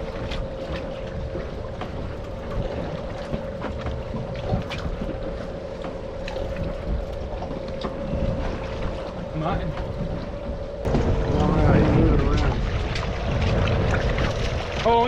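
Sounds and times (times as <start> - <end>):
steady hum: 0.0 - 15.0
water against boat hull: 0.0 - 15.0
wind buffeting microphone: 6.3 - 15.0.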